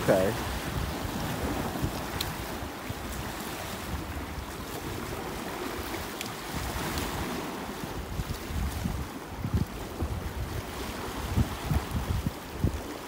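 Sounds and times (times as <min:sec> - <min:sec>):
small waves washing against rocks: 0:00.0 - 0:13.0
wind buffeting microphone: 0:00.0 - 0:13.0.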